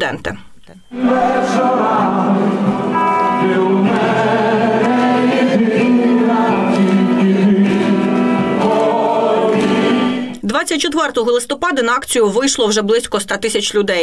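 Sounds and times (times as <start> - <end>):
choir singing long held notes: 0.9 - 10.4.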